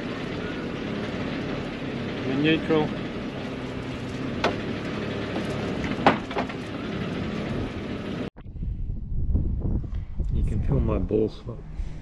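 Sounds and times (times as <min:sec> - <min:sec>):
boat engines idling: 0:00.0 - 0:08.3
sharp knocks: 0:04.3 - 0:06.6.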